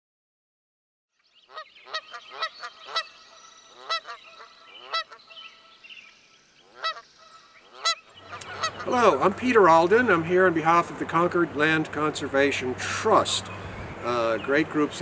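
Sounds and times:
faint high bird sounds: 1.1s - 9.0s
short loud bird calls: 1.2s - 9.1s.

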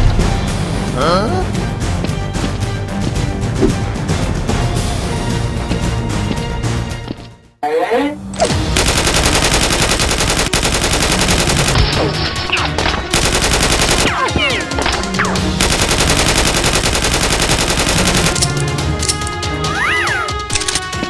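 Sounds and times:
machine-gun fire rattle: 8.6s - 11.9s, 13.0s - 18.5s.

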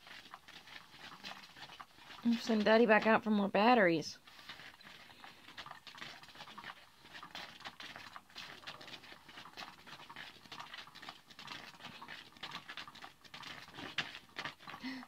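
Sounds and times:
cat toy scratchy rustling: 4.2s - 14.8s.

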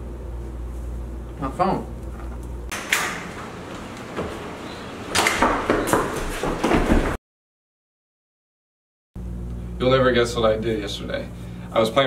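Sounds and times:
sharp knocks and clatters: 5.1s - 7.2s.

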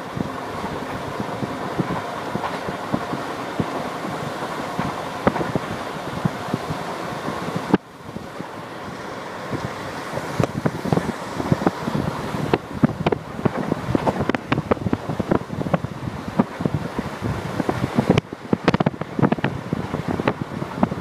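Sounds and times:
train running noise: 0.0s - 21.0s
wind buffeting microphone: 0.0s - 21.0s
crackles and thumps: 1.7s - 7.8s, 9.5s - 16.8s, 17.6s - 21.0s.

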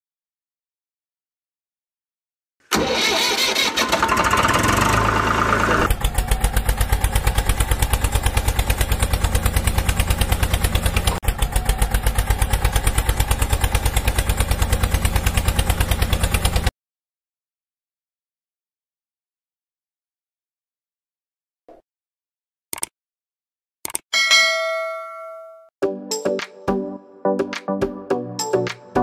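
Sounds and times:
tractor engine chugging: 2.7s - 16.7s.

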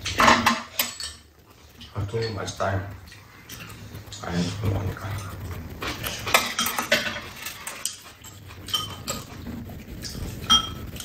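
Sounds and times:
spoons and chopsticks clinking on bowls: 0.2s - 1.3s, 5.2s - 9.4s, 10.4s - 11.0s.

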